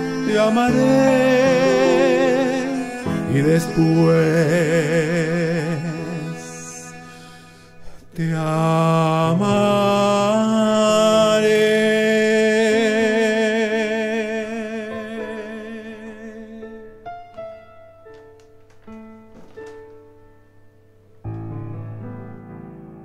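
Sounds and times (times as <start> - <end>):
sustained accompaniment: 0.0 - 10.3
person singing a ballad: 0.0 - 17.4
soft piano notes: 0.0 - 23.0.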